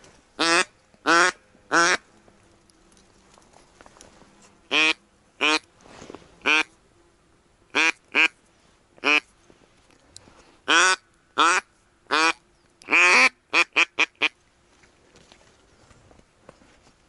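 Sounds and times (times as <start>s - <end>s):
duck call quacks: 0.4s - 2.0s, 4.7s - 5.6s, 6.4s - 6.7s, 7.8s - 8.4s, 9.0s - 9.3s, 10.7s - 14.4s.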